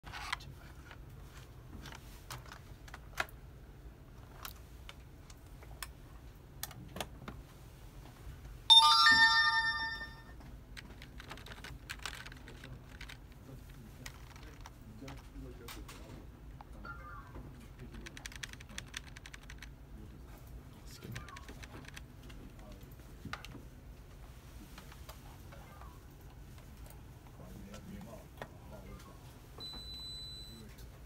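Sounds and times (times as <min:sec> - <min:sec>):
electronic chime: 0:08.7 - 0:10.3
keyboard keys clicking: 0:18.0 - 0:19.7.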